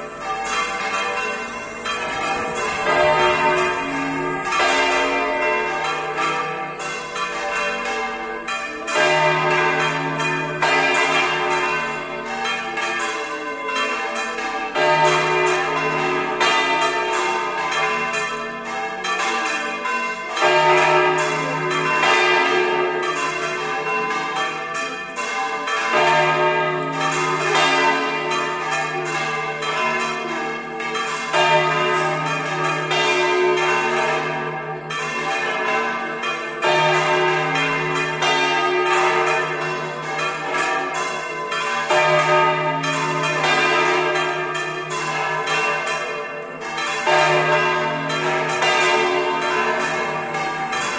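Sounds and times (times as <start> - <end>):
deep bell striking: 0.0 - 5.9
church bells ringing: 0.0 - 50.9.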